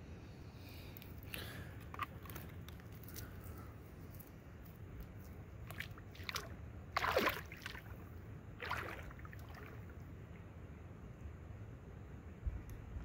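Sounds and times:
lake water splashing: 5.6 - 10.0.

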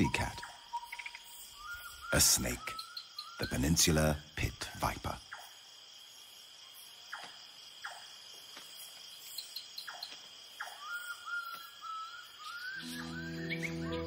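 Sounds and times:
crickets trilling: 0.0 - 14.0
sharp downward-sweeping calls: 12.8 - 14.0.

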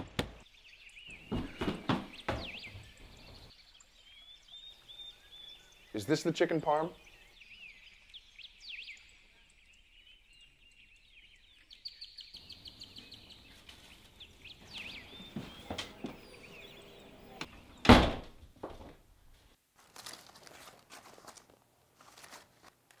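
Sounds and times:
small birds chirping: 0.0 - 17.9.

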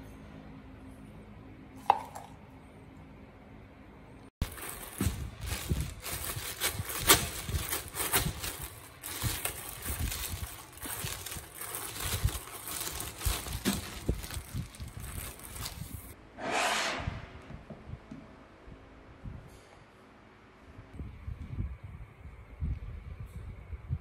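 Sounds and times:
plastic bag crinkling: 4.4 - 16.2
short smooth swish: 16.3 - 17.6.

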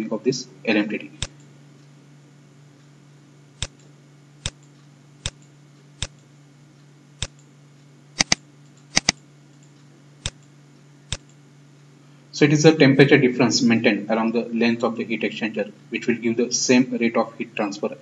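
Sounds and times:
steady low hum: 0.0 - 18.0
sharp computer clicks: 1.2 - 1.5, 3.6 - 6.3, 7.2 - 7.5, 8.1 - 11.4.

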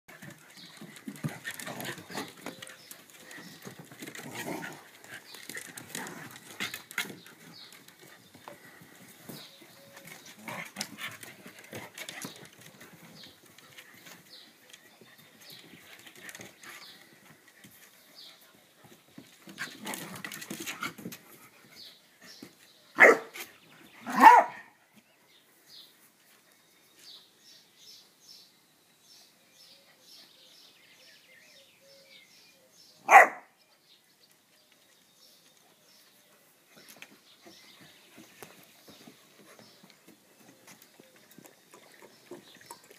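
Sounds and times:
paws scuffling on wooden boards: 0.1 - 23.6, 36.7 - 41.6
dog barking: 23.0 - 23.3, 24.1 - 24.7, 33.1 - 33.5.

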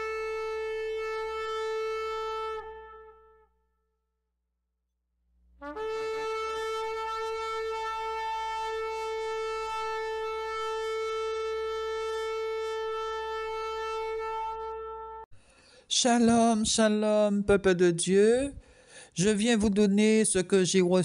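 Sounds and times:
shofar blast: 0.0 - 3.5, 5.6 - 15.3.

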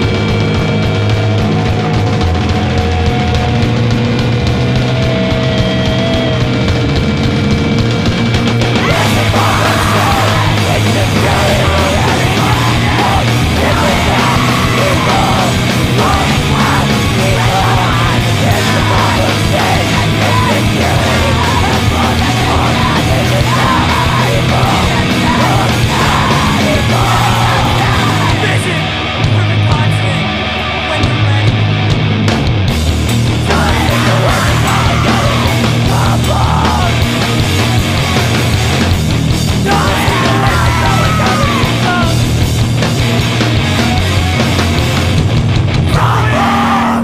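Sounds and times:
heavy distorted rock band: 0.0 - 47.0
screamed vocals: 1.0 - 6.6, 8.7 - 28.9, 33.4 - 37.4, 39.6 - 42.3, 45.9 - 47.0.

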